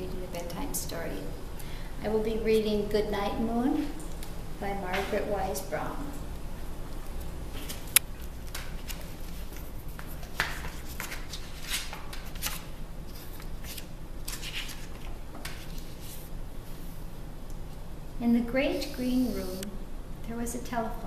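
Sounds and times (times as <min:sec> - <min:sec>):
steady low hum: 0:00.0 - 0:21.0
pages turning: 0:07.6 - 0:16.3.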